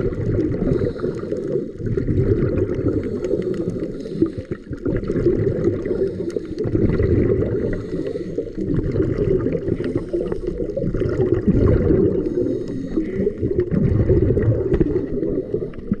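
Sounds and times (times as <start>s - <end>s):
water churning underwater: 0.0s - 16.0s
faint clicks: 2.6s - 5.1s, 5.8s - 6.8s.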